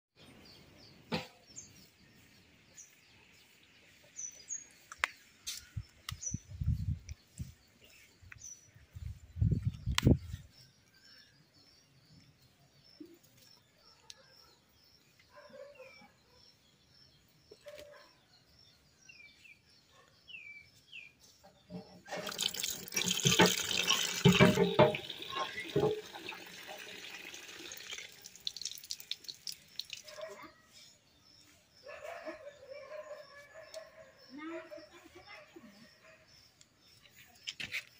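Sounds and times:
birds chirping: 0.2 - 37.9
water splashing into steel bowl: 22.1 - 30.2.

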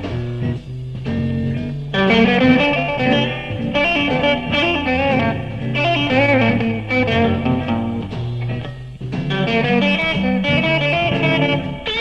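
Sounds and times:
electric blues band playing: 0.0 - 12.0
electric guitar bending notes: 0.0 - 12.0.

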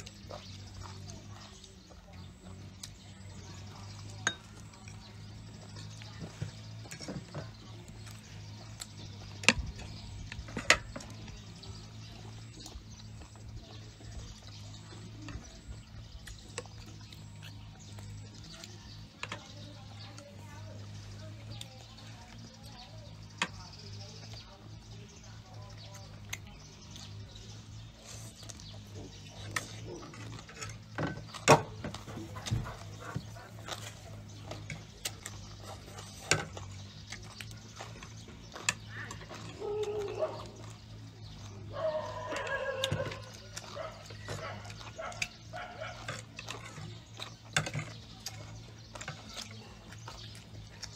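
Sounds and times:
chewing and mouth noises: 0.0 - 50.9
animal call: 38.9 - 40.8, 41.7 - 46.1.

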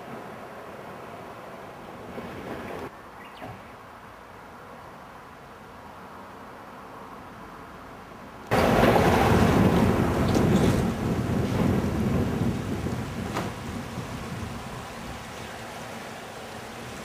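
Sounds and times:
river water rushing: 8.5 - 17.0.

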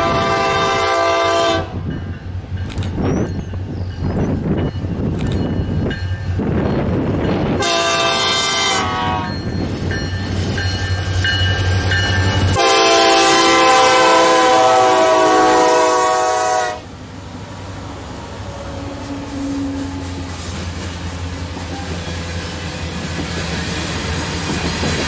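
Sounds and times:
locomotive air horn blasts: 0.0 - 1.8, 7.6 - 9.4, 12.4 - 16.9.

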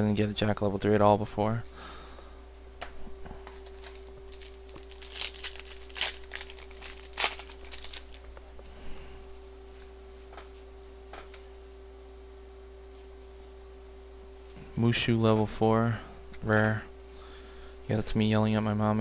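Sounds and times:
faint hum: 0.0 - 19.0
card pack wrapper tearing: 3.5 - 8.4.

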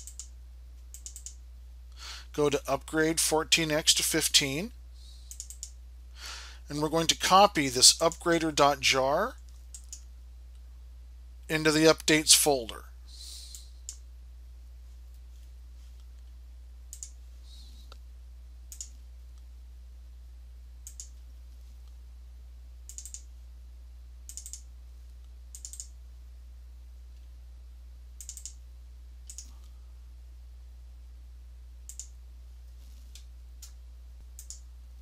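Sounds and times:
computer mouse clicking: 0.0 - 0.3, 0.9 - 1.4, 5.3 - 5.8, 9.5 - 10.0, 16.9 - 17.2, 18.7 - 19.0, 20.9 - 21.2, 22.9 - 23.3, 24.3 - 24.7, 25.5 - 25.9, 28.2 - 28.6, 29.3 - 29.5, 31.9 - 32.1, 34.4 - 34.6
steady low hum: 0.0 - 35.0.

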